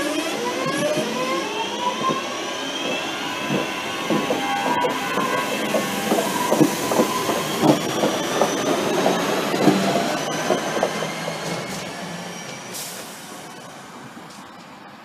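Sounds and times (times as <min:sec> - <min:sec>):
train wheels knocking over rail joints: 0:02.0 - 0:12.6.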